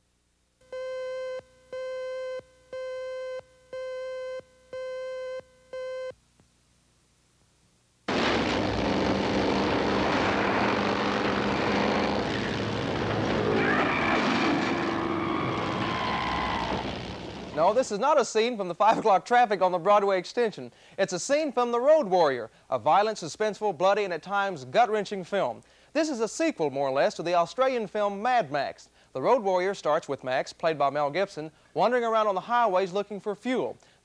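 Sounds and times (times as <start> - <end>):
vehicle chase and crash soundtrack: 8.1 - 17.6
engines whining: 9.2 - 17.6.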